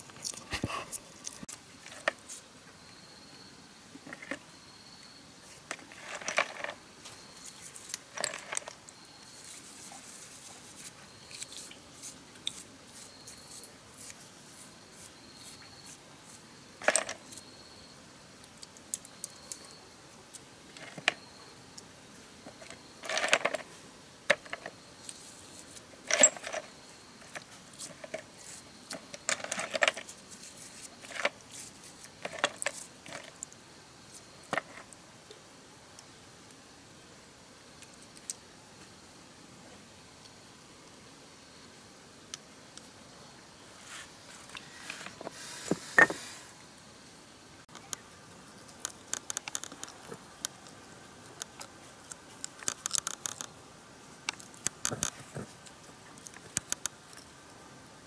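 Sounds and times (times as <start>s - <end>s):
metal parts clinking: 6.0s - 6.8s, 8.2s - 8.7s, 16.8s - 17.2s, 26.1s - 26.7s, 28.9s - 30.1s.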